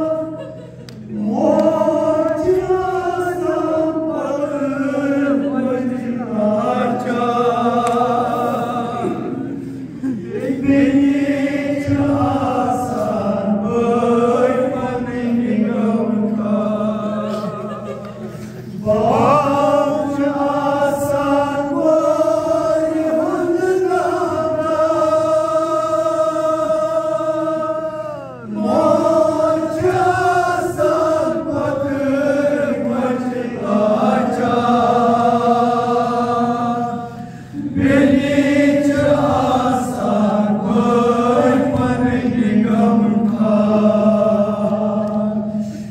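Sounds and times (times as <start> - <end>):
man singing unaccompanied lament: 18.8 - 37.0.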